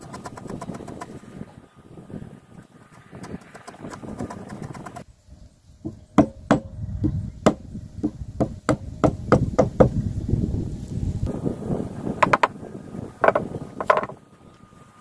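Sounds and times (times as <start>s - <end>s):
chisel scraping wood: 2.8s - 5.0s, 13.2s - 14.2s
chisel being struck into wood: 5.9s - 9.9s.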